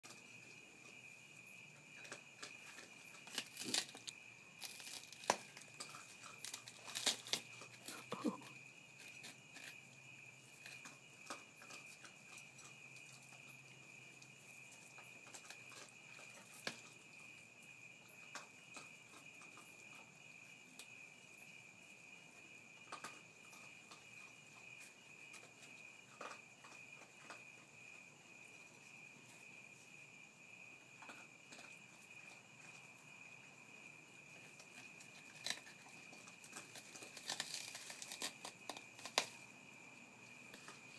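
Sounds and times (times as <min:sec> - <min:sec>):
high insect trill: 0:00.0 - 0:40.9
animals crunching leaves: 0:03.2 - 0:08.4, 0:35.4 - 0:39.4.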